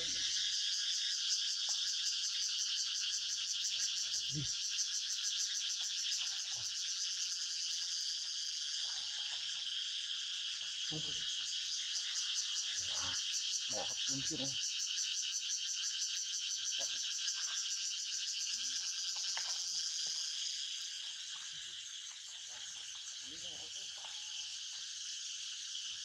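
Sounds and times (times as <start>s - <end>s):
insects buzzing: 0.0s - 26.0s.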